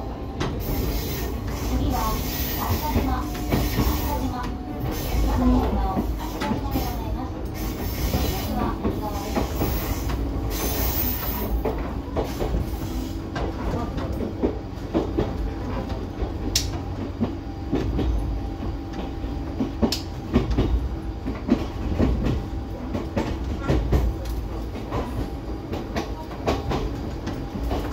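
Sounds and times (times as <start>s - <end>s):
train wheels rumbling on rail: 0.0s - 27.9s
track clicks and knocks: 13.3s - 27.9s.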